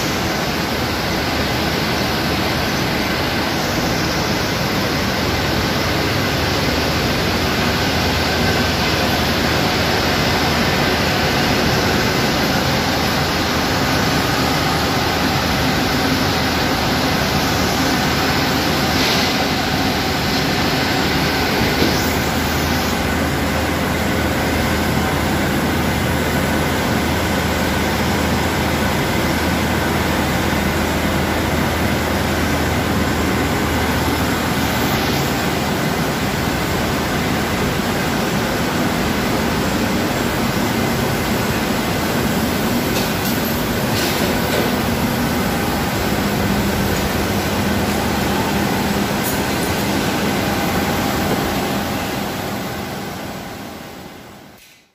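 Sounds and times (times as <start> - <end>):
mill machinery mechanical din: 0.0 - 54.7.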